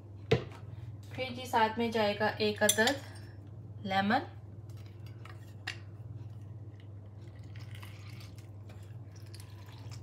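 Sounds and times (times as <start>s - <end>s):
steady low hum: 0.0s - 10.0s
juice dripping: 6.6s - 10.0s.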